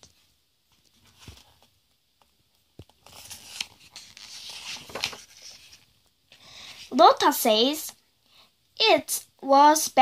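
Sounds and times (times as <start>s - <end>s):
paper rustling: 2.8s - 5.9s
paper page being turned: 2.9s - 5.9s.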